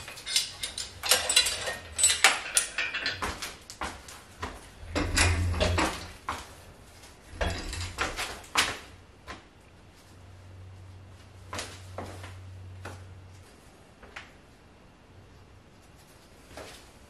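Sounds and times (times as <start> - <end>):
hoist chain clanking and rattling: 0.0 - 3.9, 4.7 - 6.3, 7.3 - 8.6
sharp metal knocks: 4.8 - 6.2.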